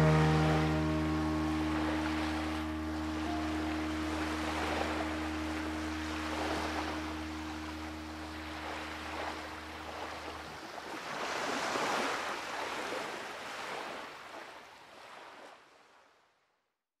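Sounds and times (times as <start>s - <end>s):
low steady tones: 0.0s - 10.6s
sea waves washing in: 0.0s - 15.7s.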